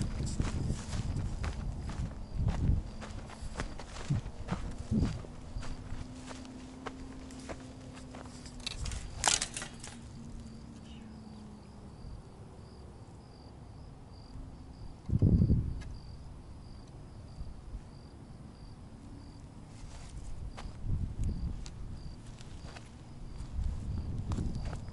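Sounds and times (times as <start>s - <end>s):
footsteps crunching on dry dirt: 0.0s - 10.7s, 19.7s - 24.9s
cricket chirping: 0.0s - 24.9s.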